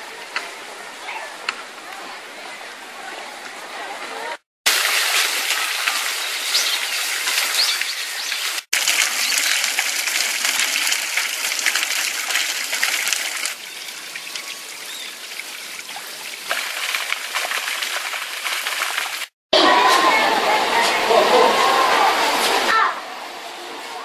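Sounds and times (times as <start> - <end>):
fountain water splashing: 4.7 - 19.3.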